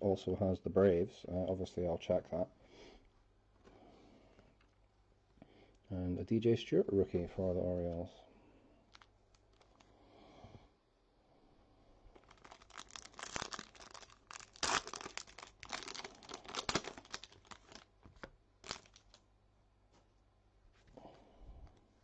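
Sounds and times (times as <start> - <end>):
foil wrapper tearing and crinkling: 8.9 - 9.9, 12.2 - 17.9, 18.6 - 19.2.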